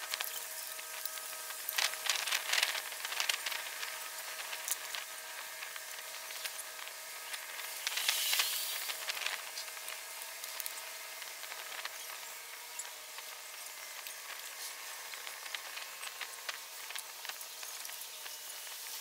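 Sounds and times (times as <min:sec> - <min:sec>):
steady background hiss: 0:00.0 - 0:19.0.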